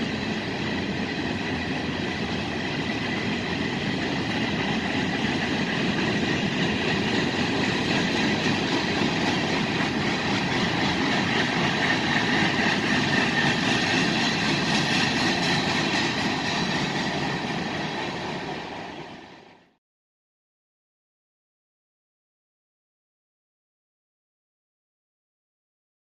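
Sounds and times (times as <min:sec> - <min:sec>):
train wheels rumbling on rail: 0:00.0 - 0:19.8.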